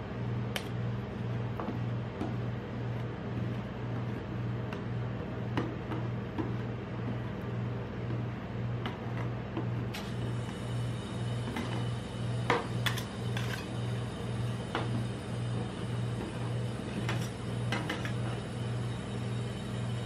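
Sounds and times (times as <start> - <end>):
metal spatula scraping cold plate: 12.8 - 13.8, 17.0 - 18.4.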